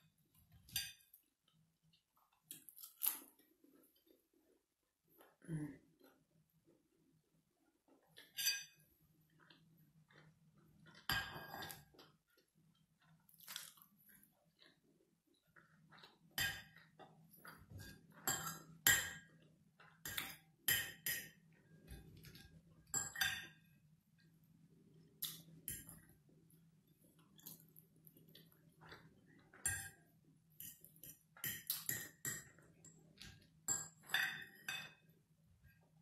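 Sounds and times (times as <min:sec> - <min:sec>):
quiet chewing: 0:09.2 - 0:18.2, 0:24.2 - 0:30.1.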